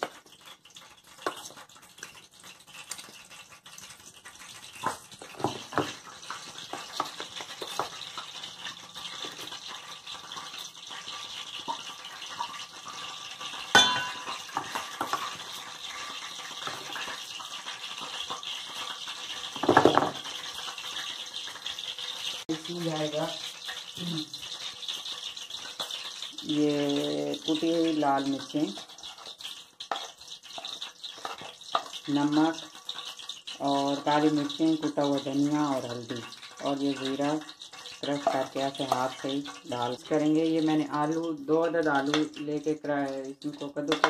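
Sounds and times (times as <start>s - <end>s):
spoon scraping glass and steel: 13.7s - 15.4s
spoon ringing clink: 13.8s - 14.4s.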